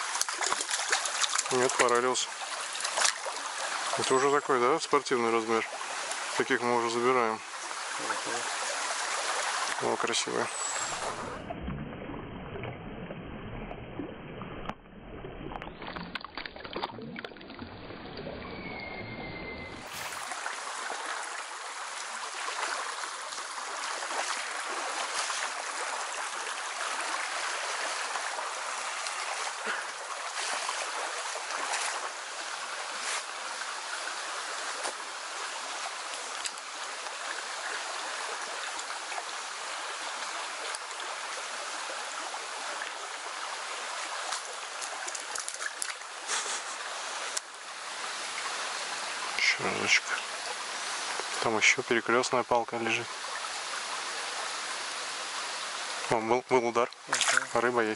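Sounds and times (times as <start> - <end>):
splashes in water: 0.0 - 4.6, 15.2 - 18.4, 19.8 - 33.8, 43.8 - 47.5, 56.8 - 57.9
stream rushing over riffle: 0.0 - 11.5, 17.8 - 57.9.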